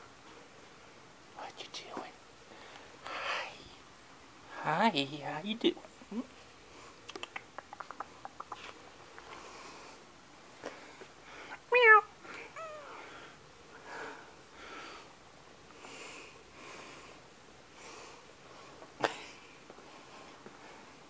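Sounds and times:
cat meowing: 11.9s - 13.1s.

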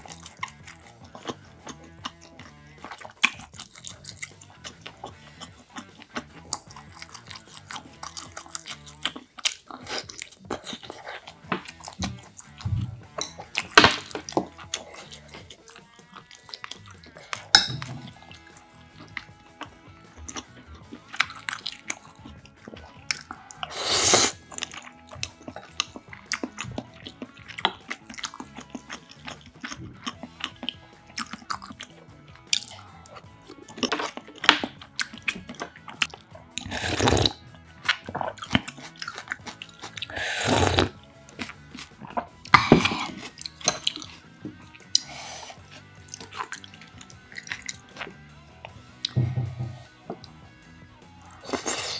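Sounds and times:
chewing with wet mouth clicks: 0.0s - 49.2s
loud slurps: 23.6s - 24.7s, 36.6s - 37.4s, 38.2s - 41.0s, 44.9s - 46.7s.

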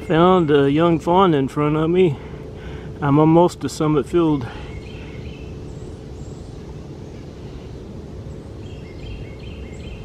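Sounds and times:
low woodland background noise: 0.0s - 10.0s
bird chirping: 4.2s - 10.0s.

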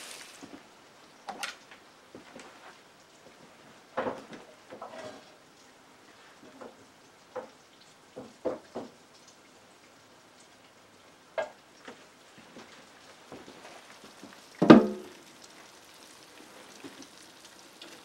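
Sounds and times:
oil sizzling in frying pan: 0.0s - 1.2s, 10.6s - 18.0s.

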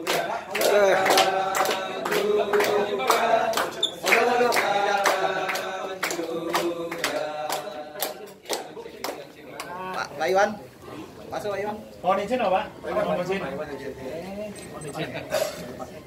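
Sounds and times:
group singing birthday song: 0.0s - 10.1s
people clapping in time: 0.0s - 10.1s.

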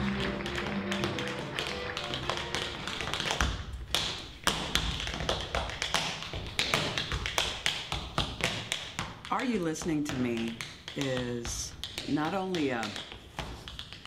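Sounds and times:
music: 0.0s - 3.5s
tap shoes on stage floor: 0.0s - 14.0s.

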